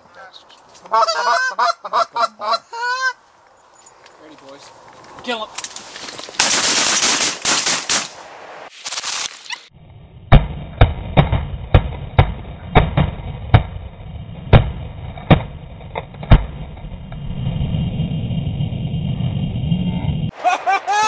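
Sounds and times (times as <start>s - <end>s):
shotgun shots: 6.4s - 8.3s
low rumble: 9.7s - 20.3s.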